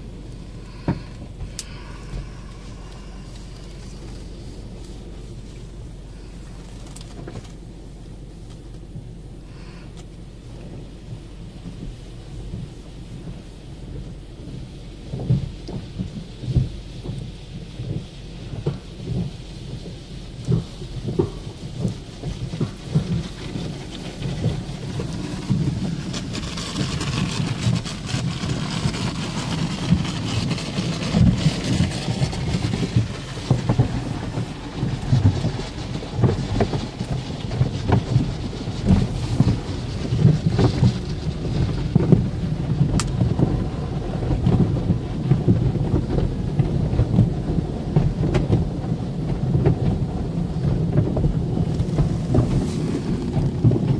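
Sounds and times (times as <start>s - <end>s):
car wash low rumble: 0.0s - 53.9s
thumps on car: 15.1s - 53.9s.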